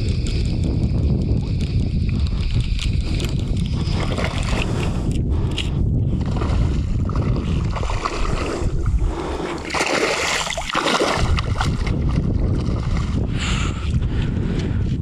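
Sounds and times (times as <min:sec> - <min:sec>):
wind rumble on microphone: 0:00.0 - 0:15.0
fish thrashing and splashing water: 0:02.4 - 0:05.0, 0:06.2 - 0:13.2.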